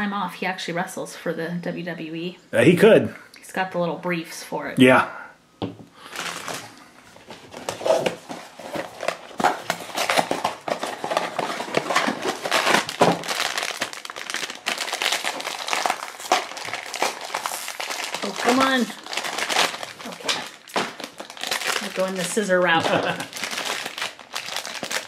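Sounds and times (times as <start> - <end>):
plastic bag crumpling: 6.0 - 25.0
cardboard box crinkling: 6.1 - 25.0.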